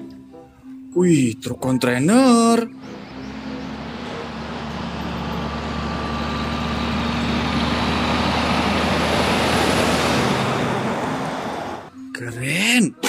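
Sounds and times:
diesel truck engine drone: 2.6s - 12.0s.

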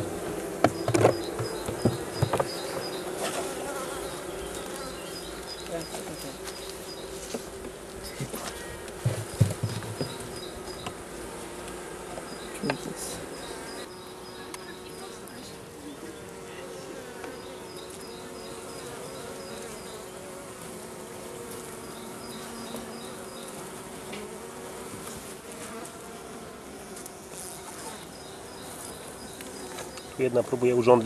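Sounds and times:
honeybees buzzing: 0.0s - 31.0s
knocks: 0.6s - 2.6s, 9.0s - 10.2s.

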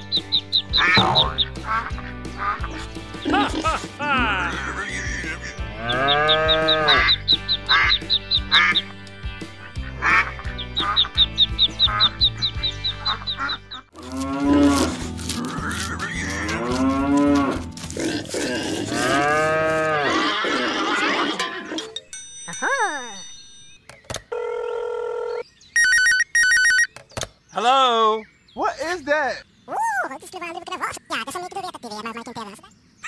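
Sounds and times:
light background music: 0.0s - 19.6s
cow mooing: 5.7s - 7.2s, 14.0s - 20.4s.

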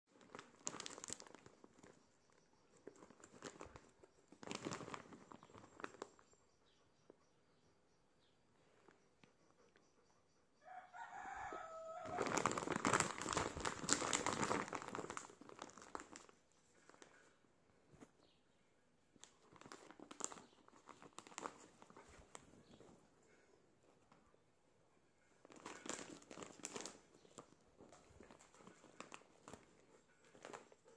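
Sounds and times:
plastic bag crinkling: 0.1s - 6.2s, 11.0s - 17.2s, 19.2s - 22.8s, 25.4s - 30.9s
light clicks of treats: 25.4s - 30.9s.

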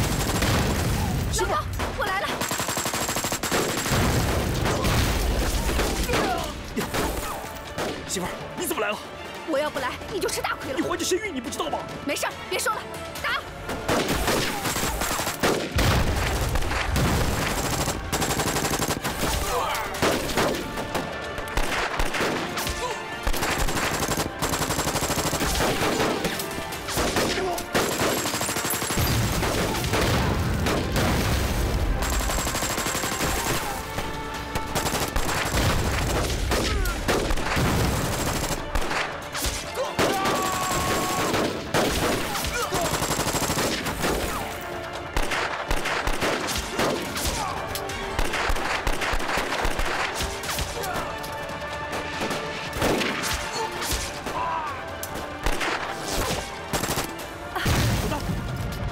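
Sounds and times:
rifle and machine-gun fire: 0.0s - 8.0s, 13.6s - 50.8s, 51.8s - 54.3s, 55.3s - 58.6s
explosions: 3.8s - 7.2s, 15.4s - 17.7s, 29.0s - 32.2s, 35.5s - 39.0s, 57.6s - 58.9s.

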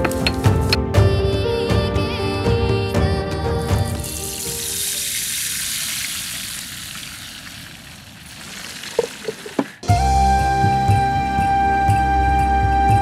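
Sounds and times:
food sizzling in hot oil: 4.0s - 9.8s.

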